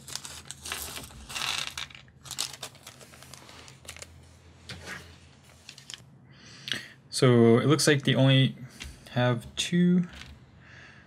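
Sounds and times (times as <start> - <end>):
plastic bag crinkling: 0.0 - 4.2.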